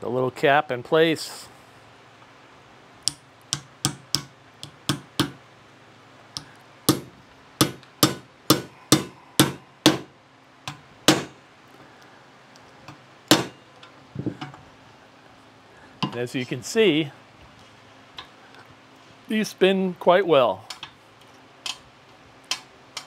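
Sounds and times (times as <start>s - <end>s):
small hammer tapping metal: 3.1s - 5.4s, 6.4s - 10.1s, 13.3s - 13.6s.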